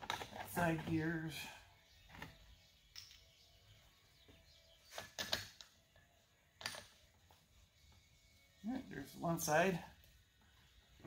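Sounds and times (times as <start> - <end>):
light metallic clinks: 2.8 - 3.4.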